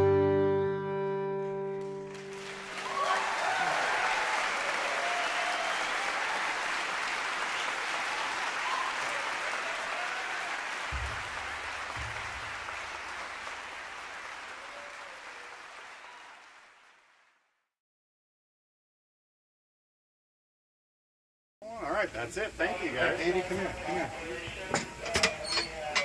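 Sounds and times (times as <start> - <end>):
audience applauding: 1.8 - 17.5
low thumps: 10.9 - 13.9.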